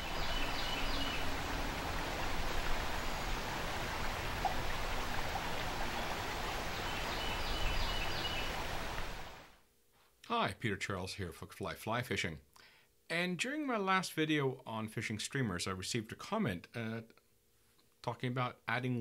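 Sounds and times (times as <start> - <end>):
river water rushing over rapids: 0.0 - 9.6.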